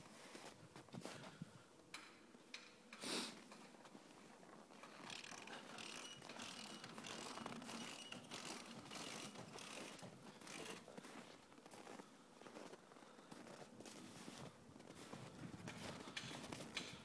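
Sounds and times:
footsteps crunching in snow: 0.0 - 1.4, 5.8 - 16.8.

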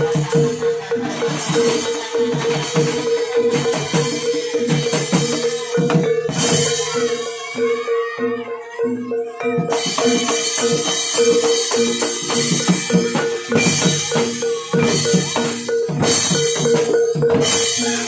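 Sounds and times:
drums beating fast rhythm: 0.0 - 18.0.

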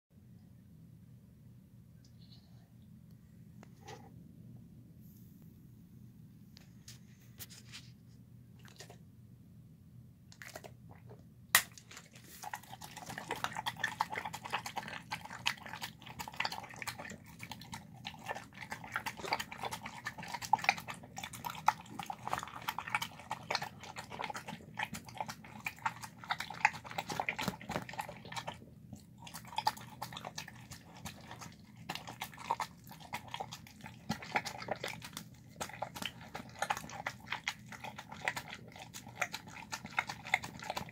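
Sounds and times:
dog chewing food: 8.6 - 9.0, 10.4 - 11.1, 11.8 - 40.9.

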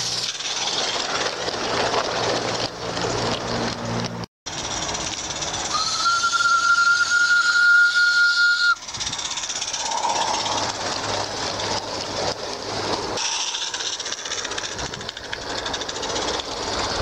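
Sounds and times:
steam whistle: 5.7 - 8.8
rapid exhaust beats: 8.7 - 17.0
hiss of steam: 13.2 - 14.0.

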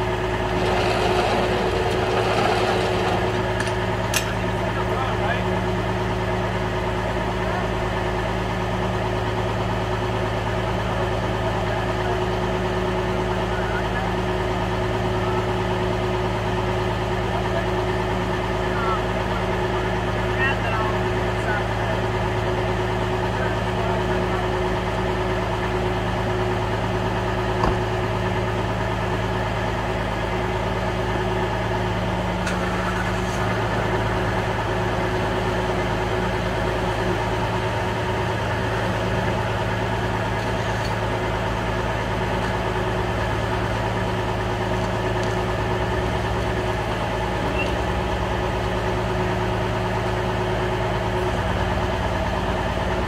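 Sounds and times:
truck engine idling: 0.0 - 53.0.

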